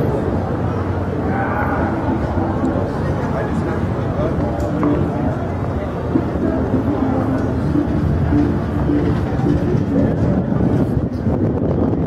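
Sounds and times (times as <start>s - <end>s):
busy street noise: 0.0s - 12.0s.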